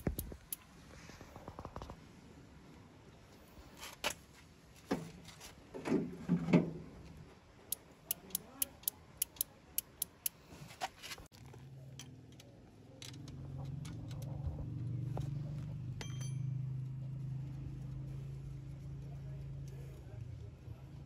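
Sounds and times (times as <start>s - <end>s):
relay clicking: 7.7s - 10.4s.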